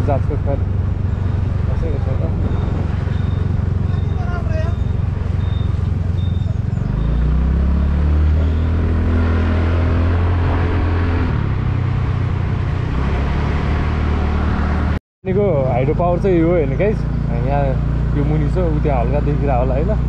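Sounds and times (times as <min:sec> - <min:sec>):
motorcycle engine running: 0:00.0 - 0:07.3, 0:15.3 - 0:20.0
wind noise on microphone: 0:00.6 - 0:06.5.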